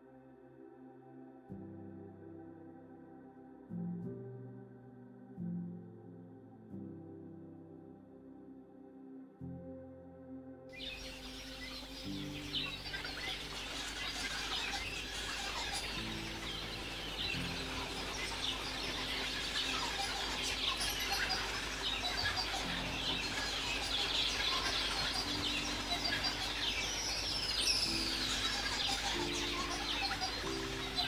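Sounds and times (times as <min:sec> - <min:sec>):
soft background music: 0:00.0 - 0:31.0
birds chirping and calling: 0:10.8 - 0:31.0.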